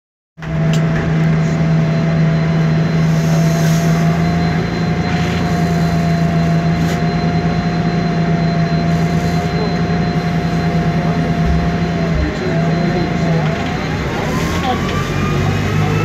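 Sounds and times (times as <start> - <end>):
bus engine drone: 0.4 - 16.0
transmission whine: 0.4 - 16.0.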